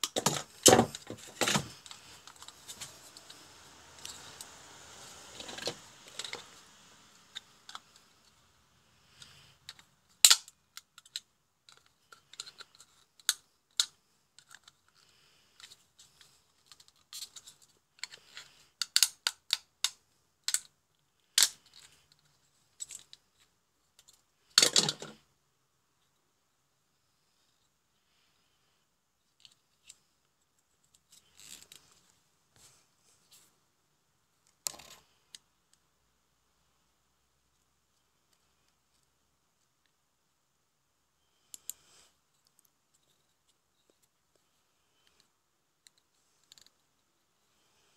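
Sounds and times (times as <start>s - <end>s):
plastic parts rustling: 0.0s - 4.3s, 5.3s - 6.6s, 9.1s - 19.6s, 20.4s - 25.2s
plastic parts clicking: 9.2s - 15.0s, 15.6s - 23.2s.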